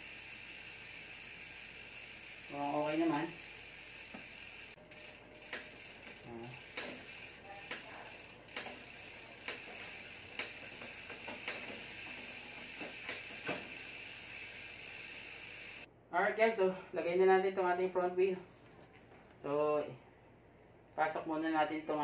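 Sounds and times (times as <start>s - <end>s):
freehub ratchet buzzing: 0.0s - 15.9s.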